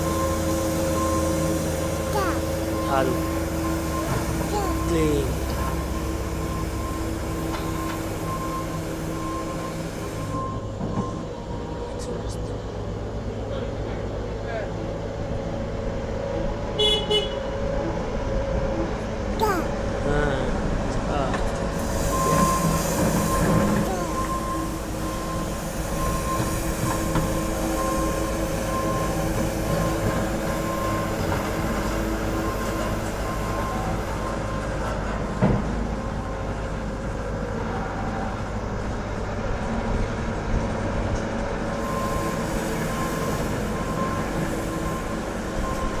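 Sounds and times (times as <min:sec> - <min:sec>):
short reversing beeps: 0:00.0 - 0:11.3, 0:22.1 - 0:26.7, 0:41.8 - 0:46.0
diesel engines running: 0:00.0 - 0:46.0.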